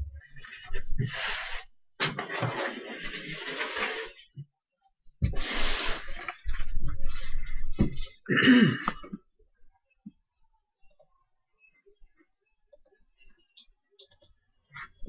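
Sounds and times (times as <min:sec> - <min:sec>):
man clearing throat: 0:08.3 - 0:09.1.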